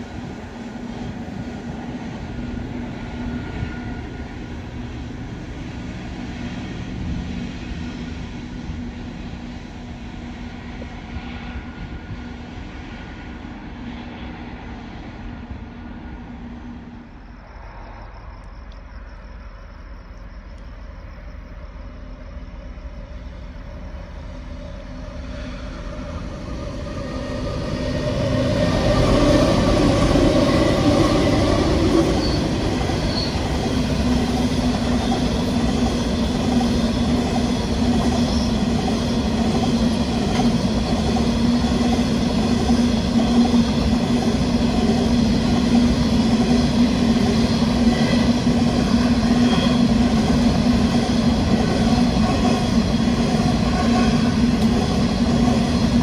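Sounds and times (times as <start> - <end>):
diesel locomotives passing: 0.0 - 56.0
wheel squeal: 32.1 - 33.6.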